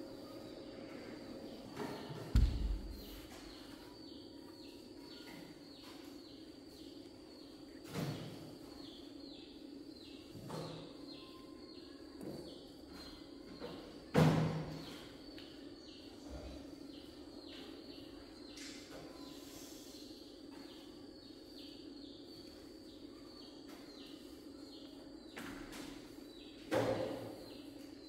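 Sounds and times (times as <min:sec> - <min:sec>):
bird chirping: 0:00.2 - 0:07.8
dull thumps: 0:02.3 - 0:03.5.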